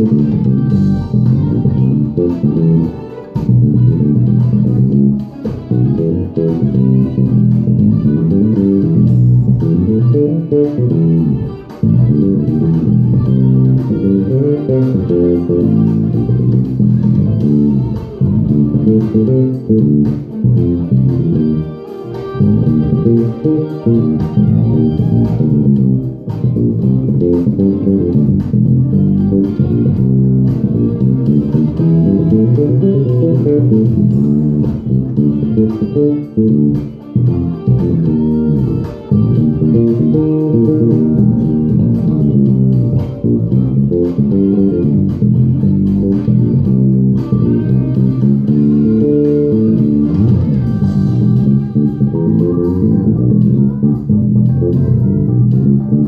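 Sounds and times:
electric bass playing: 0:00.0 - 0:56.0.

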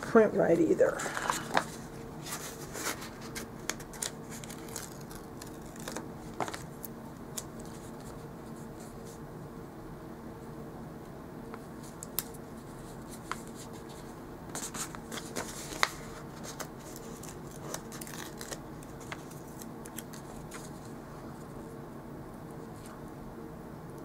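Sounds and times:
paper stickers rustling: 0:01.1 - 0:06.7, 0:13.1 - 0:21.0.

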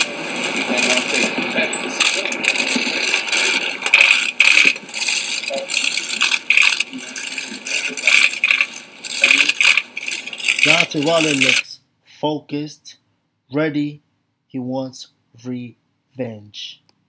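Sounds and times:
camera shutters clicking: 0:02.0 - 0:11.6.

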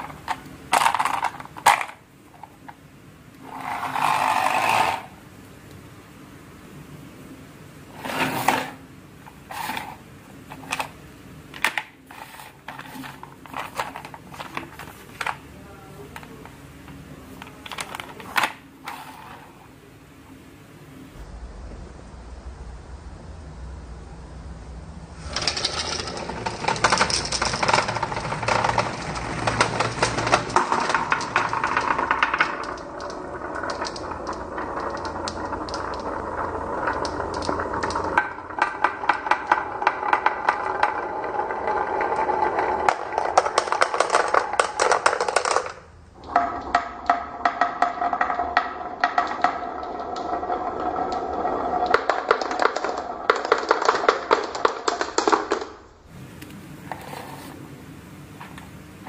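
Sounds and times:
marbles rolling down wooden track: 0:00.0 - 0:02.8, 0:03.4 - 0:05.1, 0:09.5 - 0:15.4, 0:25.2 - 0:55.8.

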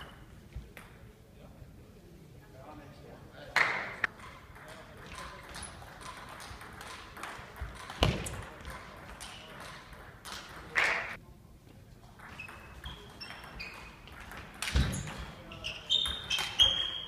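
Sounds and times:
shoes squeaking on floor: 0:12.2 - 0:17.0.

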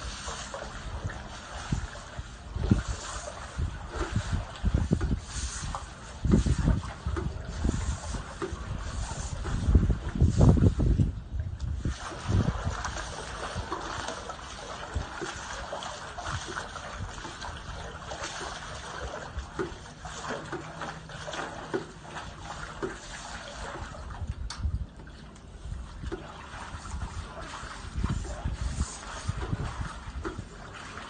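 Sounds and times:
pool water churning and splashing: 0:00.0 - 0:31.0
water trickling: 0:00.0 - 0:31.0.

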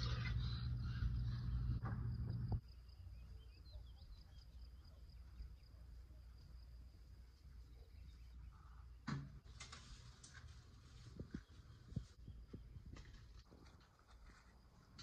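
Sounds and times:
faint bird chirps: 0:00.0 - 0:06.6, 0:07.4 - 0:09.0.

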